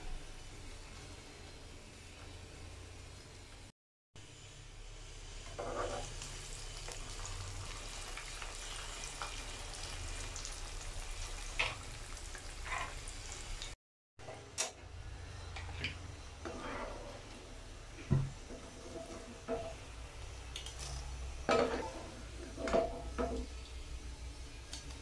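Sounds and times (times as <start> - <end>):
food deep-frying in oil: 0.0 - 13.8, 15.3 - 25.0.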